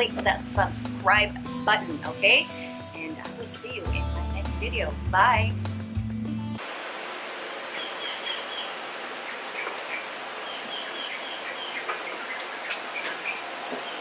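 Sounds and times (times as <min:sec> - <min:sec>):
steady background hiss: 0:06.6 - 0:14.0
birds chirping: 0:07.6 - 0:14.0.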